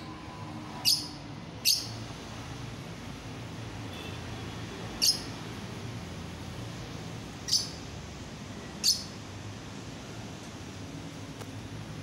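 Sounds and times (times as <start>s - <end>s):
bird chirping shrilly: 0.8s - 2.0s, 5.0s - 5.3s, 7.5s - 7.8s, 8.8s - 9.2s.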